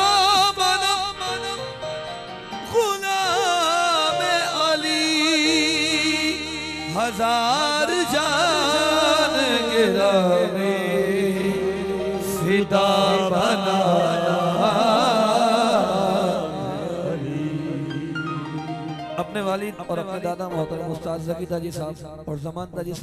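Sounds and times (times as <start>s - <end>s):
person singing with vibrato: 0.0s - 21.5s
harmonium: 0.0s - 22.5s.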